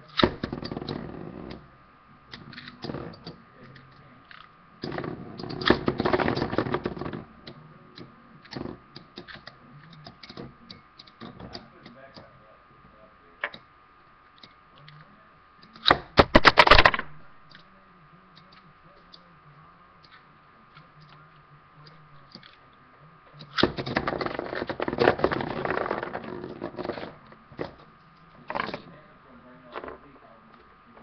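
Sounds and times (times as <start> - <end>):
top rattling and scraping: 23.8 - 27.8.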